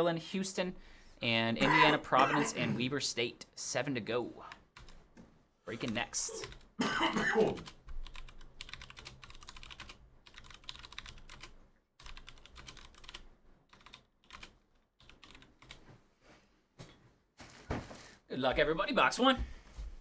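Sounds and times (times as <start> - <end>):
computer keyboard typing: 4.8 - 5.0, 7.5 - 15.8.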